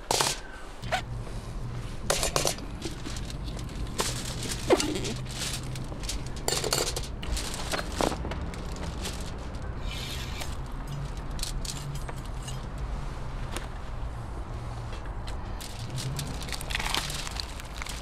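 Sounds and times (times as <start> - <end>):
foil crinkling: 2.3 - 11.7, 15.6 - 18.0.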